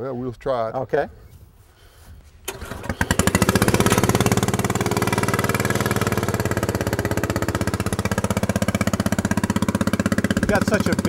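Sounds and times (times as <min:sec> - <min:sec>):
small engine running: 0:02.5 - 0:11.0.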